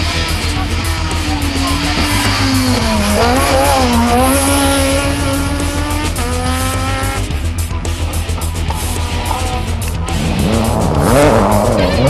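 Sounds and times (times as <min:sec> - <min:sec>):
rally car engine at high revs: 0:00.0 - 0:12.0.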